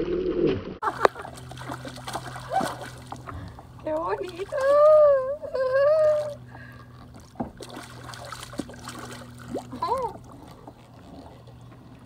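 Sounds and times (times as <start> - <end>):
faint steady hum: 0.8 - 12.0
water splashing against kayak: 0.8 - 12.0
woman exclaiming: 3.9 - 6.4.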